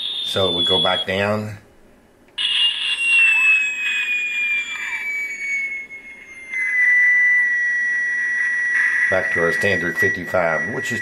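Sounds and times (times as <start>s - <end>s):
radar doppler whistle tone: 0.0s - 1.3s, 2.4s - 11.0s.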